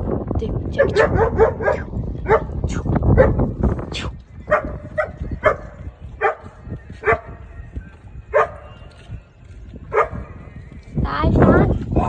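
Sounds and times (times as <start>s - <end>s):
dog barking: 0.8s - 2.6s, 3.2s - 3.4s, 4.5s - 7.4s, 8.3s - 8.8s, 9.9s - 10.3s.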